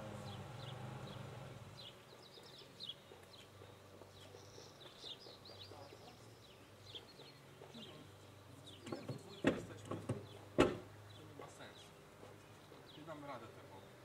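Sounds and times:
small birds chirping: 0:00.0 - 0:14.0
sharp knocks: 0:08.9 - 0:10.9.

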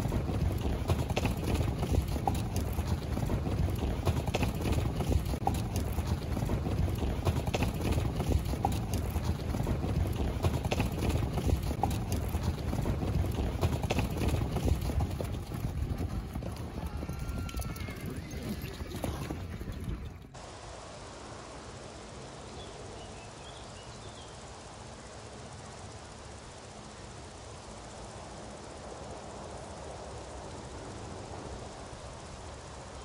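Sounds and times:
horse hooves on dry earth: 0:00.0 - 0:20.4.

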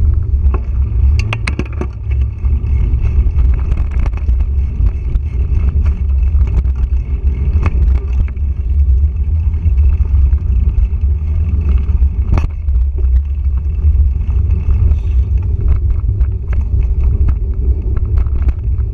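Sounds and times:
bike rattles and clicks: 0:00.0 - 0:18.9
wind and trail rumble: 0:00.0 - 0:18.9.

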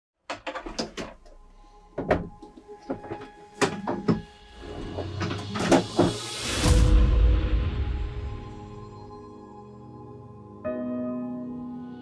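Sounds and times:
hard cases knocking: 0:01.9 - 0:06.2.

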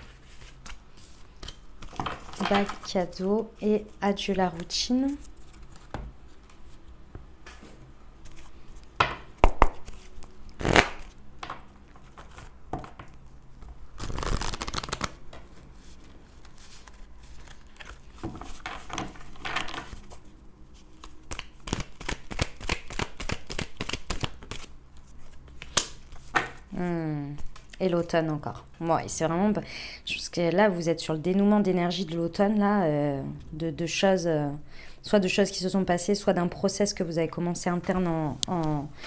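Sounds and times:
cards rustling shuffle: 0:00.0 - 0:02.9, 0:03.8 - 0:06.8, 0:11.9 - 0:26.7
cards flicking shuffles: 0:14.0 - 0:15.1.

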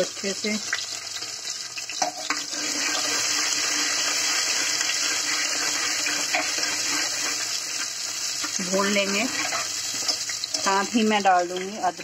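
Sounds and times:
onions sizzling in oil: 0:00.0 - 0:12.0
spoon scraping: 0:02.0 - 0:10.8.

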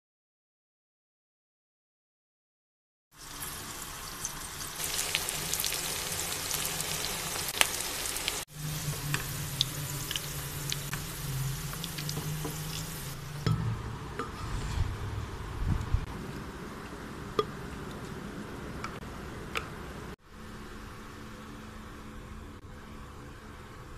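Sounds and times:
onions sizzling in oil: 0:03.2 - 0:13.4
oil crackling and popping: 0:04.0 - 0:08.4, 0:09.0 - 0:13.2.

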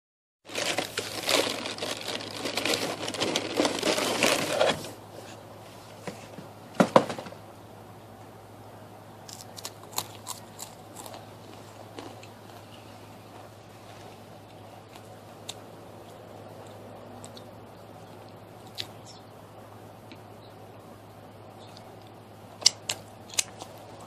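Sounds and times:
reversed crackers crunching: 0:00.5 - 0:05.4, 0:09.2 - 0:19.3, 0:21.5 - 0:24.0.

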